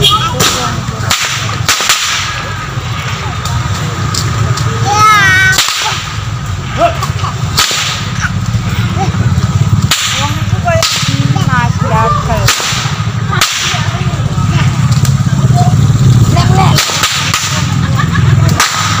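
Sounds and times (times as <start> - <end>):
whip cracks: 0.3 - 2.5, 5.5 - 6.3, 7.5 - 8.3, 9.8 - 11.3, 12.4 - 14.0, 16.7 - 17.8, 18.4 - 19.0.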